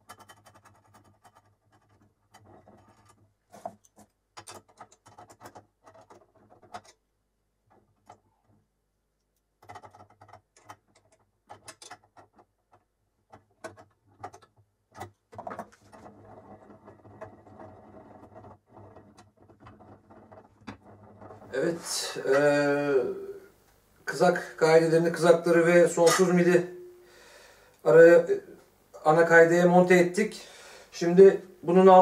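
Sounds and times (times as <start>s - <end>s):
metal parts clicking and knocking: 0.0s - 7.0s, 9.6s - 21.5s.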